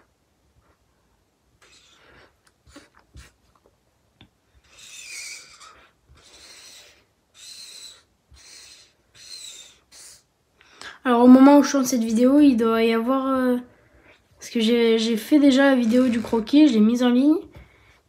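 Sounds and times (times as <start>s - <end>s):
marker rubbing on paper: 1.6s - 3.4s, 4.6s - 10.2s
marker squealing: 1.6s - 3.4s, 4.6s - 10.3s, 15.8s - 16.5s.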